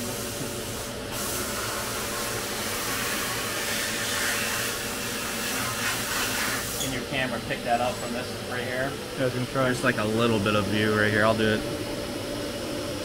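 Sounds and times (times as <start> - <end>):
air gun hissing: 0.0 - 7.0.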